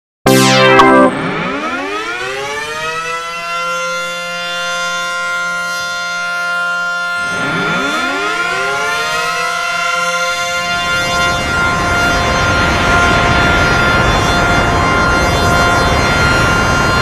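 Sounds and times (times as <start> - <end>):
blower motors whining: 7.2 - 17.0.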